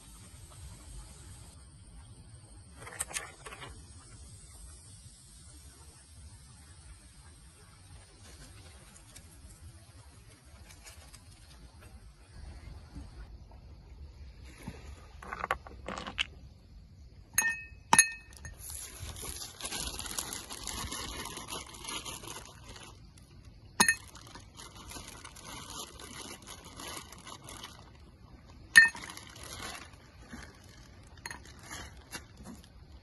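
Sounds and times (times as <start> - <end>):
glasses and tableware clinking: 17.4 - 18.6.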